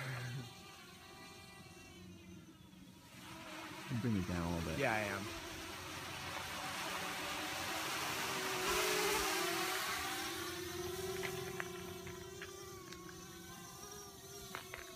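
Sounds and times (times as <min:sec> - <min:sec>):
quadcopter motors buzzing: 0:00.0 - 0:14.9.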